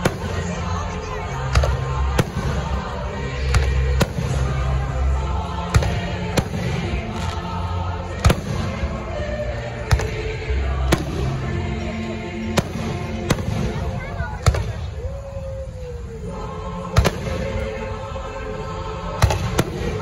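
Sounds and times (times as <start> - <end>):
firework bangs: 0.0 - 0.7, 1.5 - 5.1, 5.7 - 11.5, 12.4 - 15.0, 16.9 - 17.6, 19.2 - 20.0
music playing: 0.0 - 20.0.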